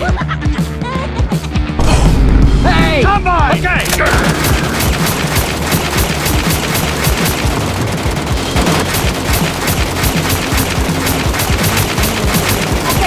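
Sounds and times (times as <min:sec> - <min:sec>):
automatic gunfire: 0:03.8 - 0:13.0.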